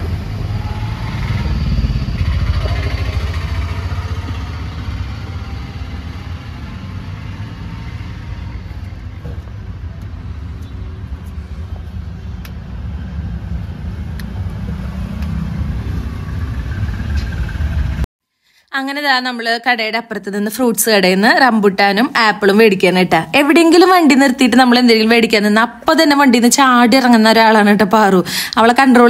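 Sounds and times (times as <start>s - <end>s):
vehicle engine and road noise: 0.0s - 18.1s.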